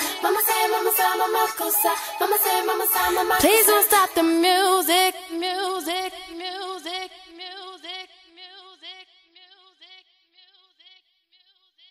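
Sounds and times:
pop dance beat: 0.0s - 4.3s.

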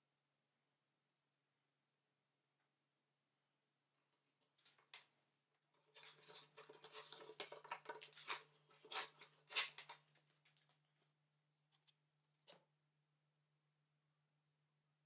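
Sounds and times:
hands handling wooden pieces: 5.8s - 10.8s.

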